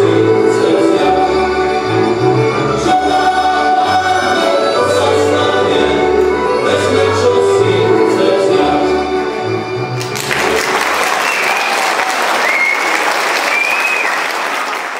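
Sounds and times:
song with singing: 0:00.0 - 0:10.6
audience applause: 0:10.0 - 0:14.9.

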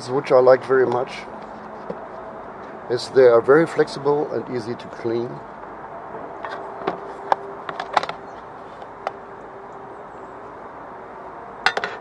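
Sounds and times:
metal pots clinking: 0:11.7 - 0:12.0.

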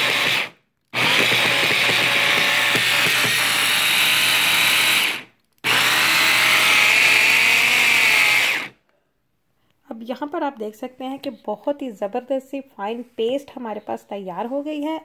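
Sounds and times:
electric chopper motor running: 0:00.0 - 0:08.7.

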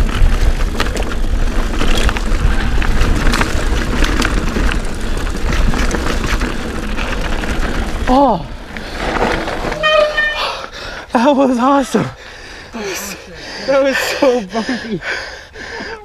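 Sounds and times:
wind buffeting microphone: 0:00.0 - 0:09.8
bike rattling over bumps: 0:00.0 - 0:15.2.

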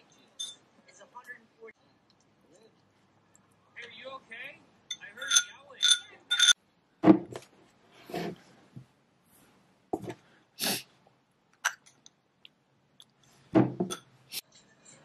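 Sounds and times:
spoon clinking in bowl: 0:00.4 - 0:00.6, 0:04.9 - 0:06.6
bowl set down knock: 0:13.6 - 0:14.0.

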